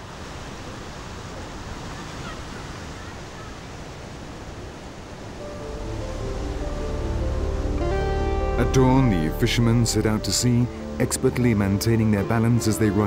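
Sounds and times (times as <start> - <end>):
ocean waves breaking: 0.0 - 13.0
music: 5.4 - 13.0.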